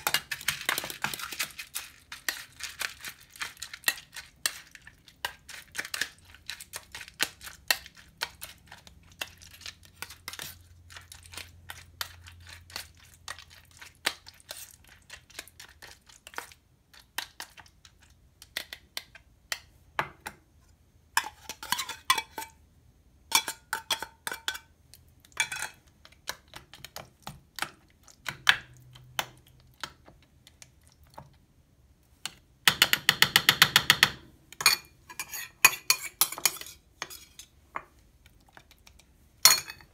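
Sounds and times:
metal spoon clinking on bowls: 0:25.4 - 0:25.8, 0:34.6 - 0:37.5, 0:39.4 - 0:39.9.

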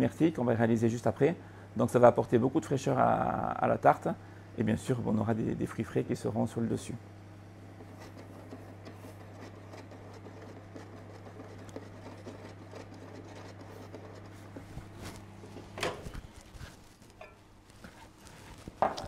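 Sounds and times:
induction hob humming: 0:01.3 - 0:19.0.

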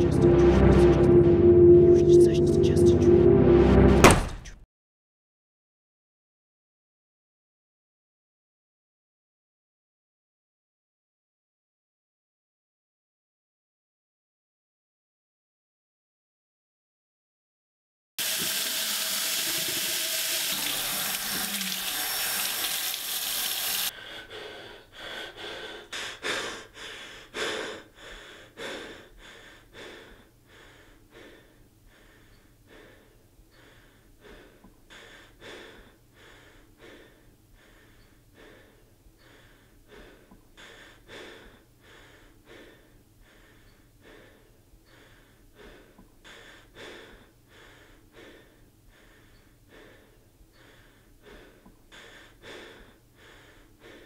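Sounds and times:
faucet running into sink: 0:18.2 - 0:23.9
short heavy breaths: 0:23.9 - 0:54.0.

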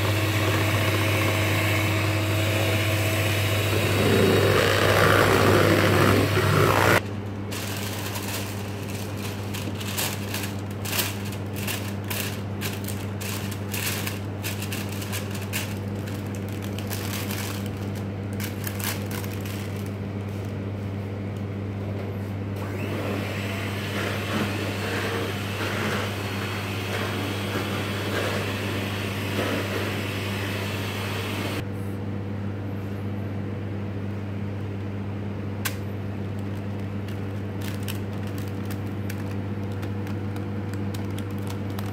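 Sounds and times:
steady low hum: 0:00.0 - 0:22.6
parchment paper crinkling: 0:04.9 - 0:20.6, 0:36.2 - 0:41.9.

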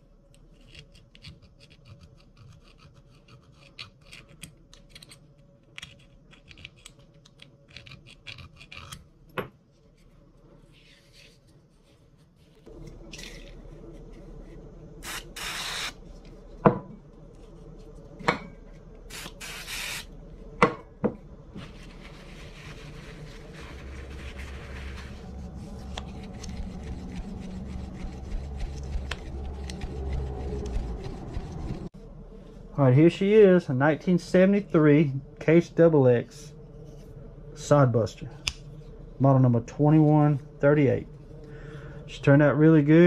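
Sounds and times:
aerosol spray hissing: 0:15.0 - 0:16.0, 0:19.1 - 0:20.1
rag rubbing over knife: 0:21.6 - 0:31.9.

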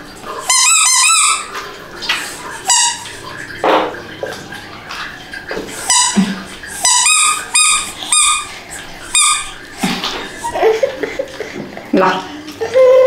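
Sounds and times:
dog whining: 0:00.5 - 0:01.6, 0:06.8 - 0:09.7.

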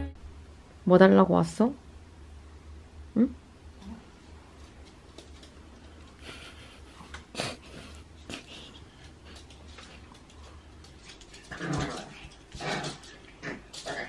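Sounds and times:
human voice: 0:03.2 - 0:04.0
dogs sniffing and snuffling: 0:03.8 - 0:14.0.

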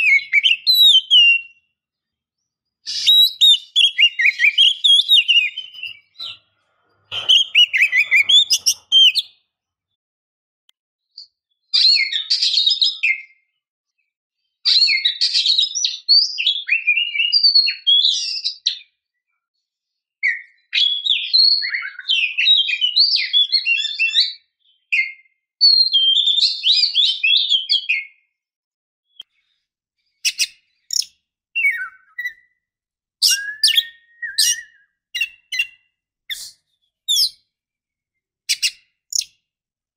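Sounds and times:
bird whistles and chirps: 0:00.0 - 0:01.8, 0:02.8 - 0:06.5, 0:07.1 - 0:09.4, 0:11.2 - 0:13.6, 0:14.7 - 0:19.0, 0:20.2 - 0:28.3, 0:30.2 - 0:37.4, 0:38.5 - 0:39.4.

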